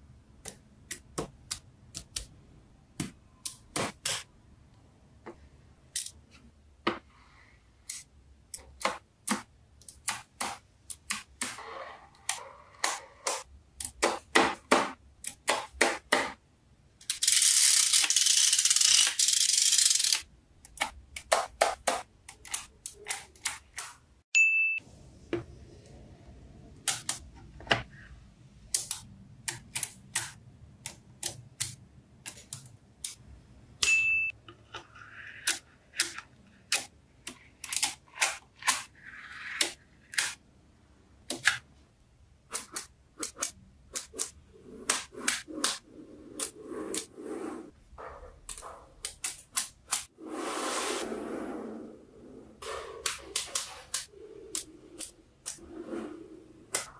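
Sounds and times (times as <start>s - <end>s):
short high ding: 24.4s - 24.8s, 33.8s - 34.3s.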